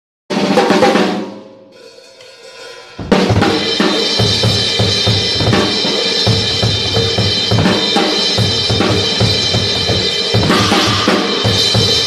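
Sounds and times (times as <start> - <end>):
drum kit playing: 0.3 - 12.0
snare and cymbal hits: 0.3 - 12.0
cymbals ringing: 1.7 - 12.0
fast bass drum strokes: 2.8 - 12.0.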